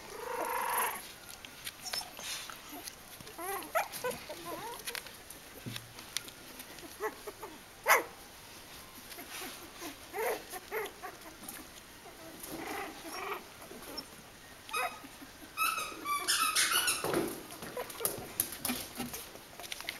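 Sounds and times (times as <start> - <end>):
puppies squeaking and yipping: 0.0 - 5.1, 6.6 - 8.1, 9.0 - 19.9
puppy yelp: 1.8 - 5.0, 6.8 - 8.1, 9.2 - 11.4, 12.1 - 14.1, 14.7 - 19.2.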